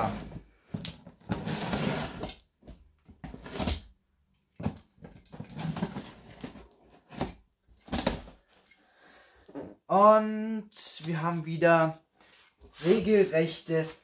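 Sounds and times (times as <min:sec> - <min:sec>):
box cutter scraping through tape: 0:01.3 - 0:02.4.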